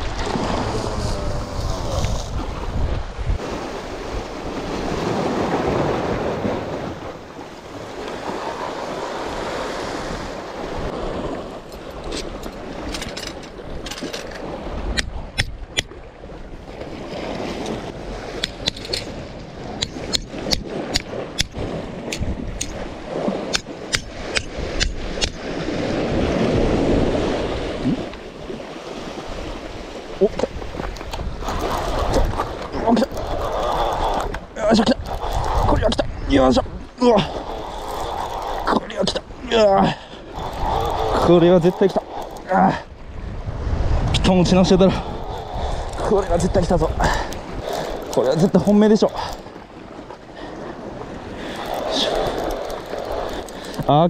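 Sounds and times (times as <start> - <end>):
surf washing on rocky shore: 0.0 - 54.0
sharp irregular clicks and taps: 19.8 - 22.8.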